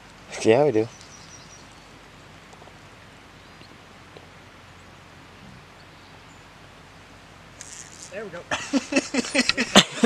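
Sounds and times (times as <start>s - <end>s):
steady faint hiss: 0.0s - 10.0s
soft scattered ticks: 7.5s - 8.3s.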